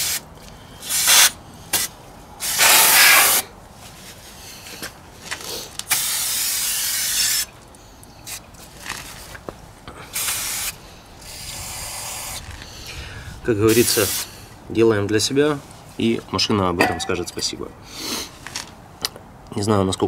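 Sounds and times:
aerosol can spraying: 0.9s - 3.4s, 5.9s - 7.5s, 10.2s - 12.4s, 13.7s - 14.3s.

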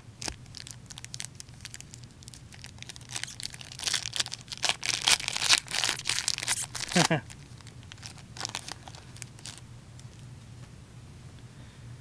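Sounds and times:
wrapper tearing and crinkling: 0.2s - 9.6s.

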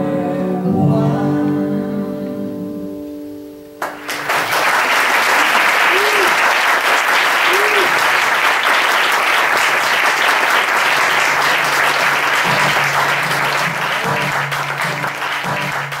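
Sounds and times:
audience applauding: 3.8s - 16.0s.

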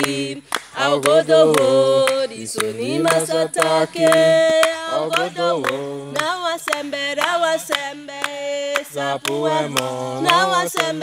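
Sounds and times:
voices singing a hymn unaccompanied: 0.0s - 11.0s.

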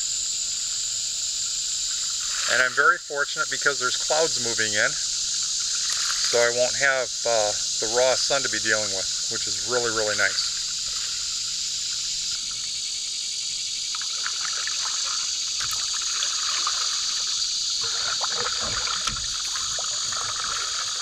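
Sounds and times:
high insect drone: 0.0s - 21.0s
paddle splashing water: 5.7s - 6.5s, 13.9s - 21.0s.

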